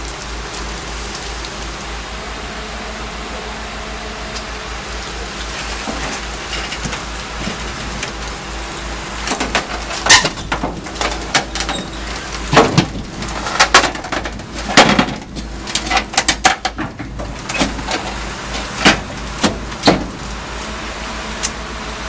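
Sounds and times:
excavator engine hum: 0:00.0 - 0:22.0
sharp knocks and clanks: 0:09.3 - 0:20.2.

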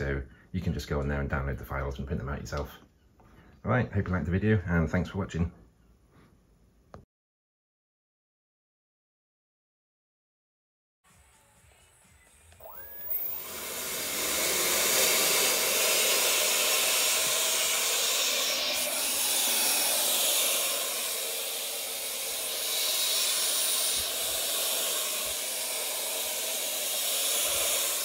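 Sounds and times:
electric ducted fan whine and rush: 0:12.6 - 0:28.0.

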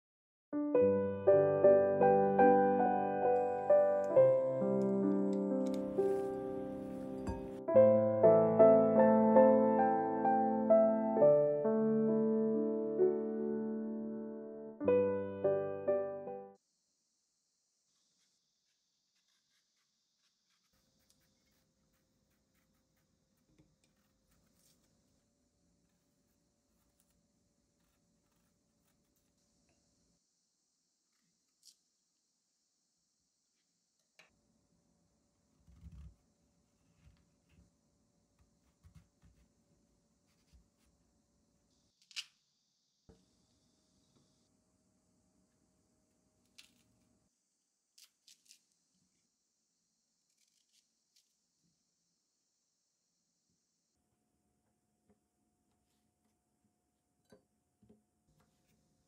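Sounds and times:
knife peeling fruit: 0:17.9 - 0:25.1.

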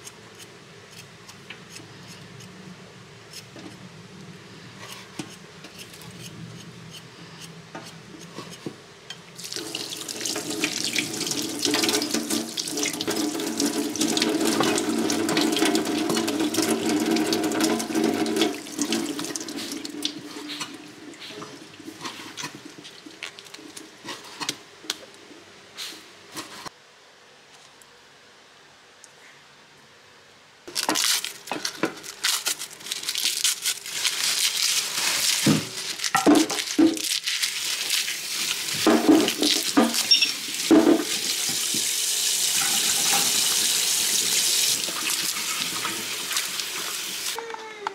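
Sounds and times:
knife scraping root: 0:04.8 - 0:08.7.

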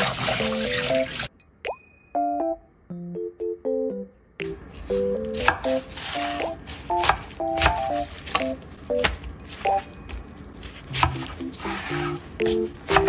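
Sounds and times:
light playful background music: 0:00.3 - 0:13.0
knife slicing cabbage: 0:05.2 - 0:09.9, 0:10.5 - 0:13.0.

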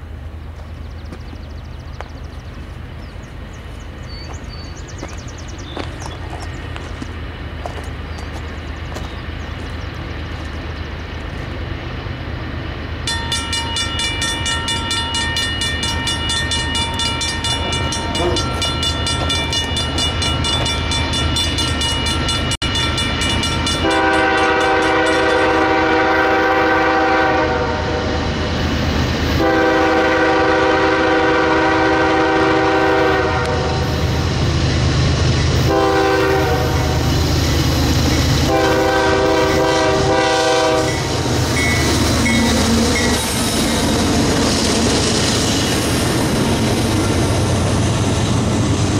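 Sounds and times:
diesel locomotives rumbling: 0:00.0 - 0:48.9
locomotive horn blasts: 0:23.7 - 0:28.2, 0:29.4 - 0:33.9, 0:35.6 - 0:37.1, 0:38.4 - 0:43.3.

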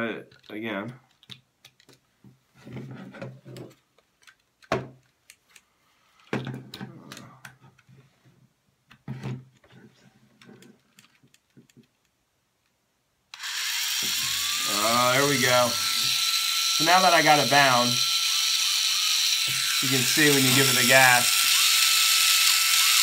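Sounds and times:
plastic transmitter clicks and rattles: 0:01.1 - 0:02.0
gyroscope whirr: 0:13.4 - 0:16.8.

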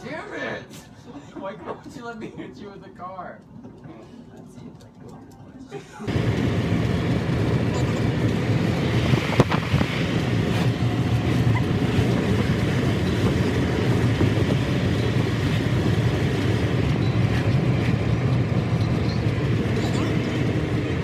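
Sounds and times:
car engine and tyre noise: 0:06.1 - 0:21.0.

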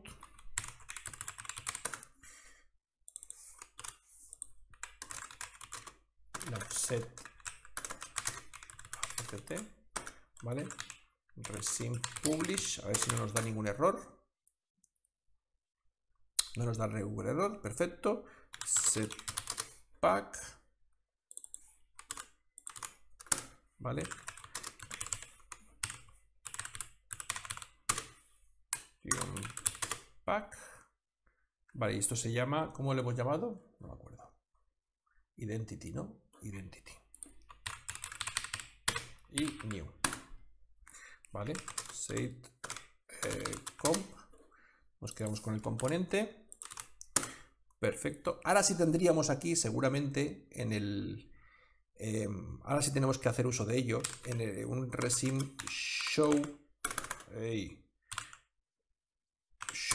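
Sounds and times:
typing on computer keyboard: 0:00.1 - 0:02.1, 0:03.1 - 0:13.5, 0:18.5 - 0:19.8, 0:21.3 - 0:30.1, 0:37.2 - 0:40.3, 0:41.5 - 0:44.1, 0:45.1 - 0:47.4, 0:54.0 - 0:57.4, 0:58.1 - 0:58.5, 0:59.6 - 0:59.9.

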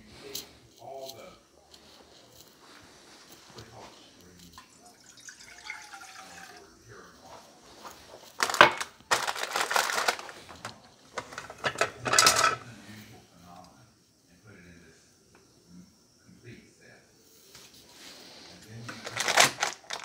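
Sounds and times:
kitchenware clattering: 0:04.5 - 0:06.6, 0:08.3 - 0:12.7
water pouring into saucepan: 0:04.5 - 0:07.4.

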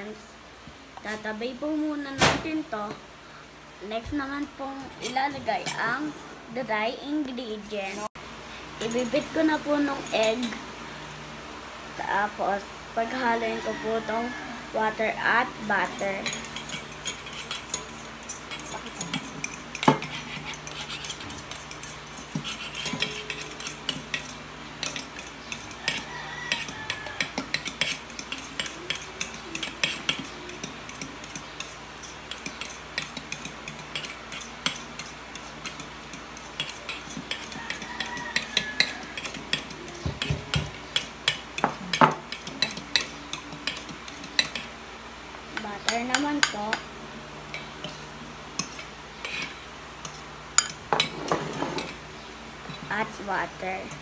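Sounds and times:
metal spoon clinking in steel bowl: 0:16.2 - 0:44.7.

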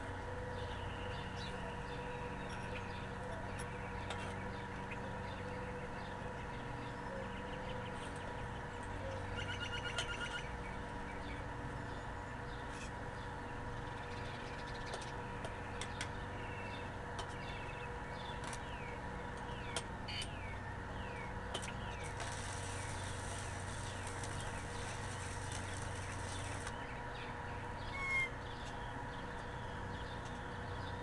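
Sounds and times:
birds chirping: 0:00.0 - 0:31.0
welding arc hissing: 0:22.0 - 0:26.8.

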